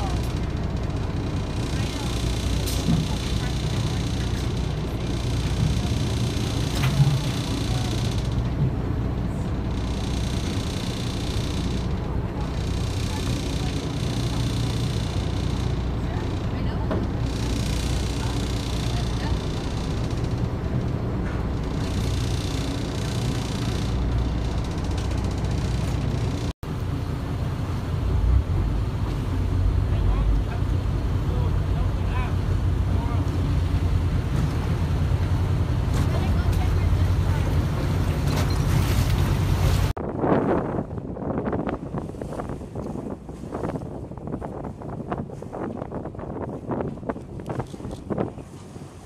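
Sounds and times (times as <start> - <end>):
small boat engine rumble: 0.0 - 49.0
wind noise on microphone: 33.8 - 49.0.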